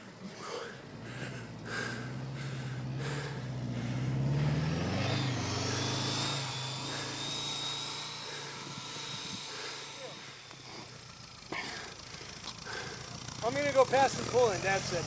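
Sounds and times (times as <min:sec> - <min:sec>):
van engine revving: 0:00.0 - 0:15.0
thin high whine: 0:04.7 - 0:14.4.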